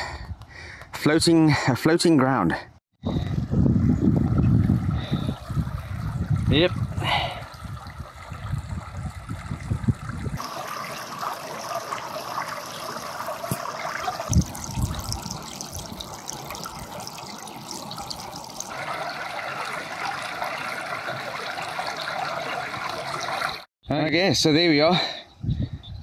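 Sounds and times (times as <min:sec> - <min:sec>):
water trickling over ground: 0:05.0 - 0:23.6.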